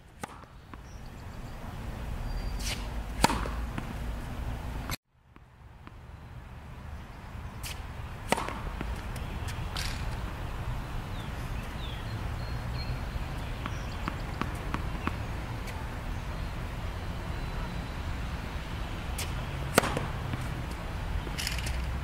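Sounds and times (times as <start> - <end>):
outdoor background noise: 0.0 - 22.0
tennis ball taps: 0.2 - 1.2, 3.1 - 4.0, 7.7 - 10.2, 13.4 - 15.8, 19.2 - 22.0.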